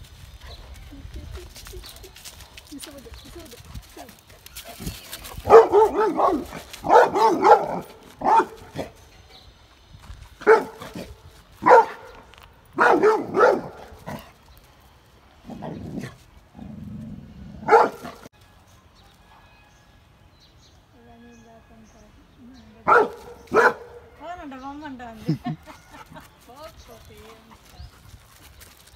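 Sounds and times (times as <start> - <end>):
dog barking: 5.4 - 8.9, 10.4 - 10.8, 11.6 - 12.1, 12.8 - 13.8, 17.6 - 18.2, 22.8 - 24.0.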